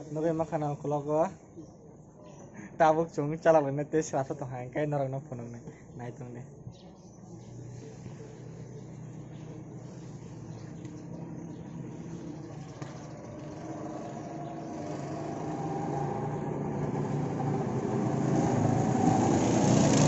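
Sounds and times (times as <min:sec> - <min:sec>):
go-kart engines running: 0:07.5 - 0:20.0.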